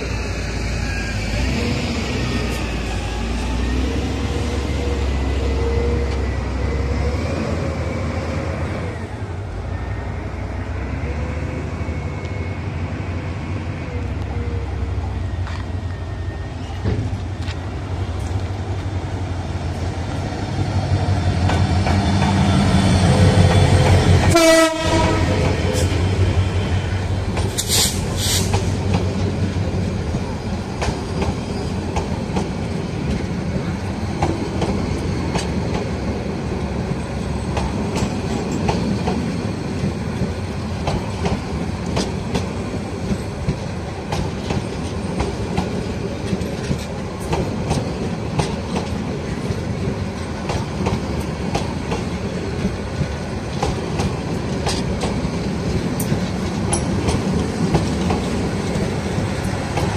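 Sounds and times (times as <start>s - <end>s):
train wheels clacking on rails: 20.4s - 59.9s.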